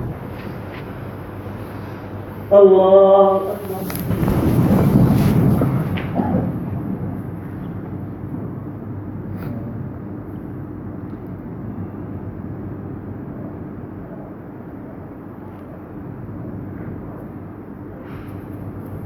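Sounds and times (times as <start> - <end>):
low hum and rumble: 0.0 - 19.0.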